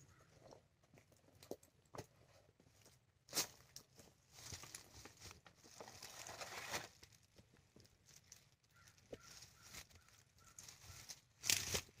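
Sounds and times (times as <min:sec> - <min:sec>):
plant leaves rustling: 0:08.0 - 0:12.0.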